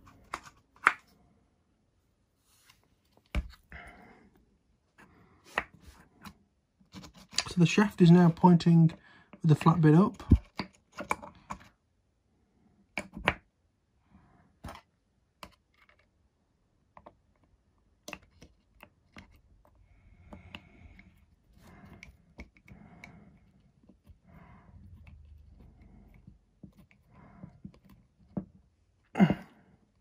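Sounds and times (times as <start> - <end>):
soft scraping and rubbing: 2.3 - 3.7.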